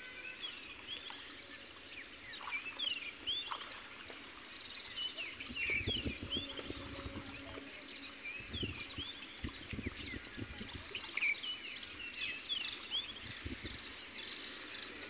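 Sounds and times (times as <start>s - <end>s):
small birds chirping: 0.3s - 15.0s.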